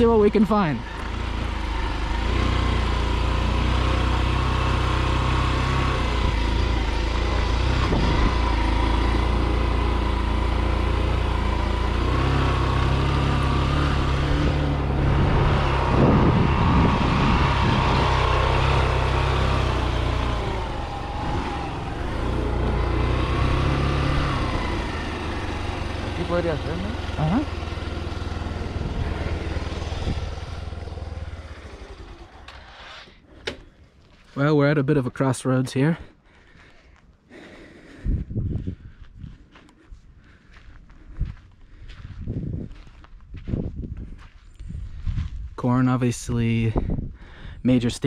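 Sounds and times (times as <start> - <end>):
motorcycle engine running: 0.0 - 34.4.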